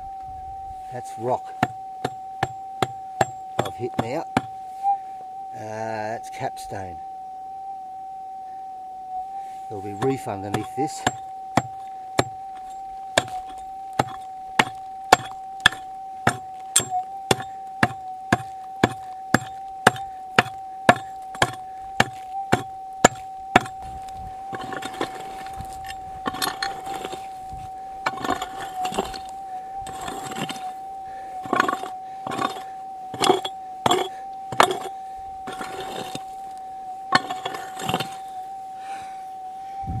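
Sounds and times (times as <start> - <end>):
metal detector high hum: 0.0 - 40.0
scraping and digging: 0.9 - 4.6, 9.6 - 38.4
steel pick striking rock: 1.6 - 4.6, 9.9 - 23.9, 24.5 - 27.3, 28.0 - 30.7, 31.4 - 36.4, 37.1 - 38.3.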